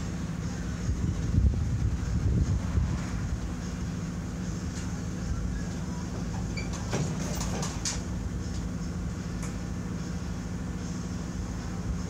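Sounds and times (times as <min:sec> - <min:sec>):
low mechanical hum: 0:00.0 - 0:12.0
metal knocks and clanks: 0:06.2 - 0:08.1.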